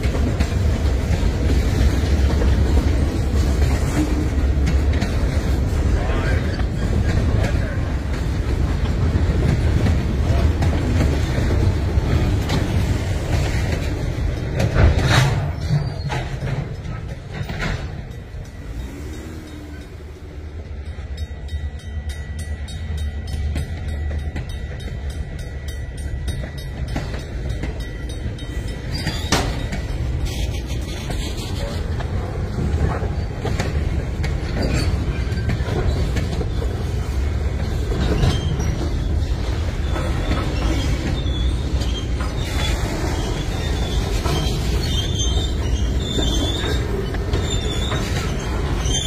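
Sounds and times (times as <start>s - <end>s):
freight train wheels rumbling: 0.0s - 49.0s
sharp knocks of train wheels: 0.0s - 49.0s
crossing signal bell ticking: 18.0s - 30.1s.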